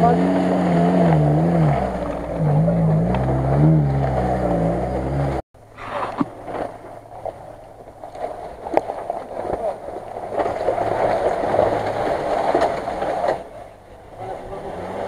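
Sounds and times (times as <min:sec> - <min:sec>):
suv engine revving: 0:00.0 - 0:06.2, 0:10.2 - 0:15.0.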